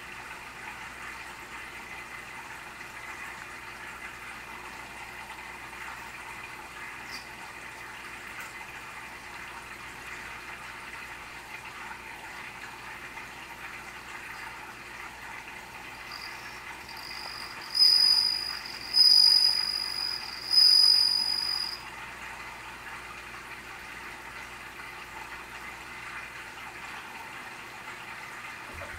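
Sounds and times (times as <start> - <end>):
cricket ringing notes: 16.0 - 21.8.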